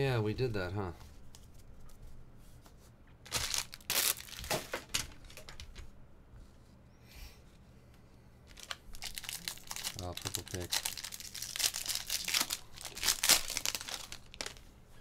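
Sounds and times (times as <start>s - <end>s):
card wrappers rustling: 3.2s - 5.8s, 8.5s - 14.7s.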